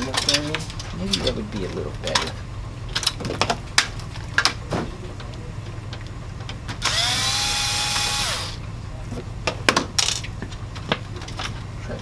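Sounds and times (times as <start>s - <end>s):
electric screwdriver motor whine: 6.8s - 8.6s.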